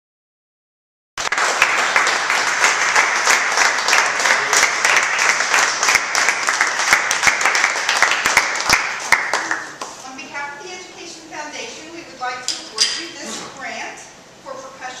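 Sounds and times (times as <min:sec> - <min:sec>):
people clapping: 0:01.2 - 0:10.0.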